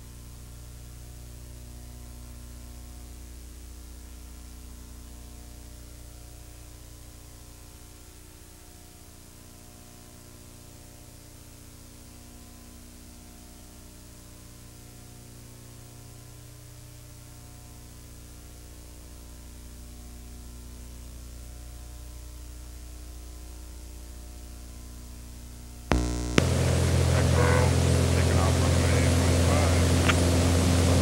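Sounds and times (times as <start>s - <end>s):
light aircraft engine drone: 25.9s - 31.0s.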